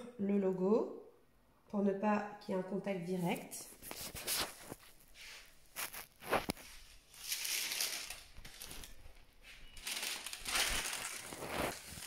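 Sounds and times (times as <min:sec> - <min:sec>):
parchment paper rustling: 0:03.2 - 0:12.0.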